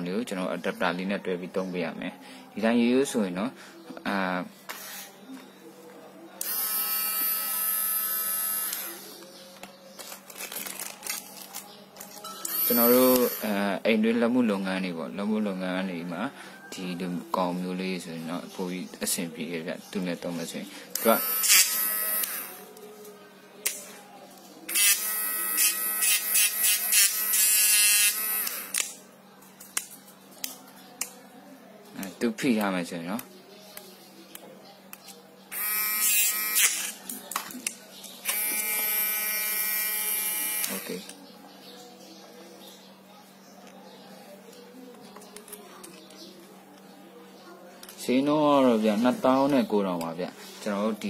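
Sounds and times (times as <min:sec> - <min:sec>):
small electric motor whining: 0:21.0 - 0:22.6, 0:38.3 - 0:40.9.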